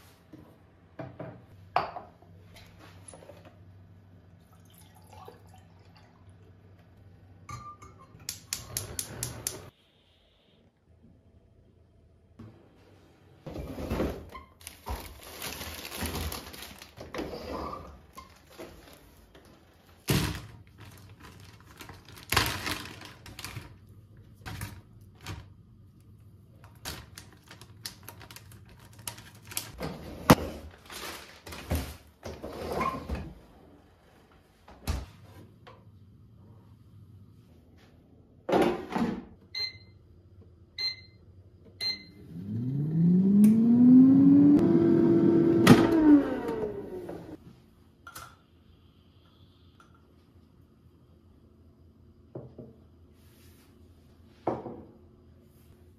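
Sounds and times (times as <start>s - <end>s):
plastic bag rustling: 14.5s - 19.3s, 19.9s - 25.5s, 26.8s - 29.8s, 30.6s - 32.1s
air fryer fan whirring: 41.8s - 47.4s.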